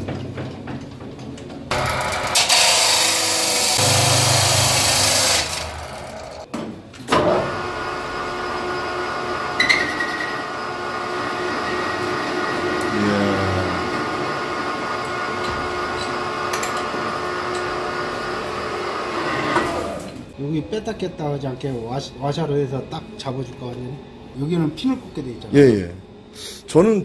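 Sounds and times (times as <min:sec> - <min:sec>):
circular saw cutting metal bar: 0:01.7 - 0:06.5, 0:07.4 - 0:20.2
metal lathe humming: 0:01.7 - 0:06.5, 0:07.5 - 0:20.3.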